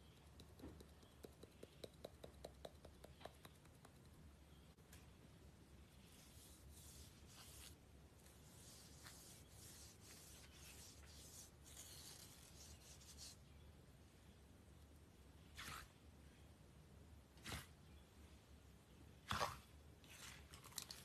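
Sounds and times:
palm sweeping powder in plastic tub: 0:05.9 - 0:13.4, 0:15.5 - 0:15.9, 0:19.3 - 0:20.6.

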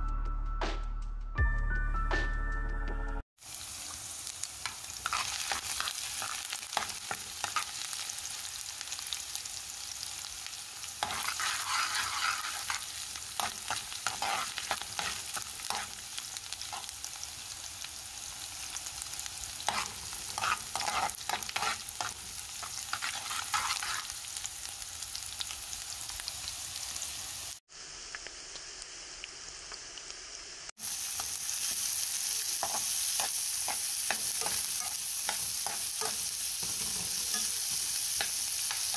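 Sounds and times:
food sizzling in oil: 0:03.4 - 0:38.9
metal spoon scraping a pan: 0:04.6 - 0:08.0, 0:11.0 - 0:17.0, 0:19.6 - 0:24.2, 0:32.6 - 0:38.9.

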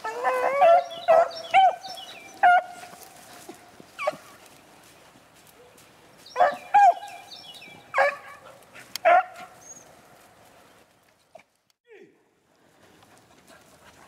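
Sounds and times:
hunting dogs baying: 0:00.0 - 0:04.5, 0:05.5 - 0:10.0.

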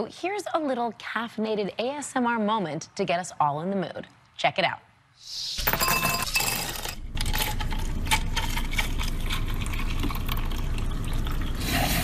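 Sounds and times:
ice cubes clinking into glass: 0:05.6 - 0:11.3
milk frother whirring: 0:07.2 - 0:12.0
liquid pouring over ice: 0:07.8 - 0:12.0.

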